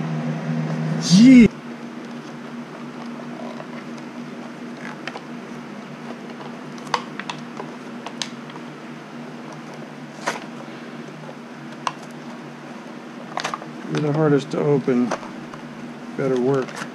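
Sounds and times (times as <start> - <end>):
steady low hum: 0.0 - 16.9
packaging crackling and snapping: 13.3 - 14.1.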